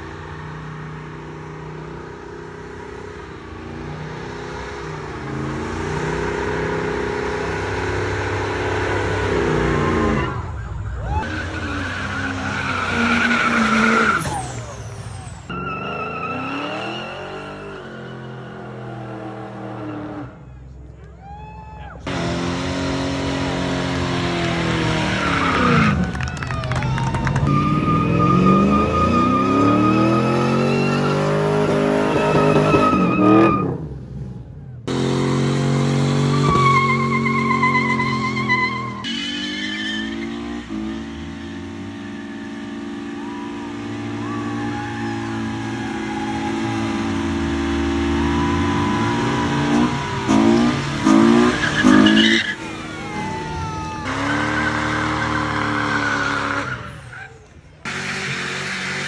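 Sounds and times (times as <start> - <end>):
car engine revving: 0.0 - 20.5, 22.0 - 59.0
tyres squealing: 11.2 - 18.7, 27.4 - 33.8, 36.2 - 40.9.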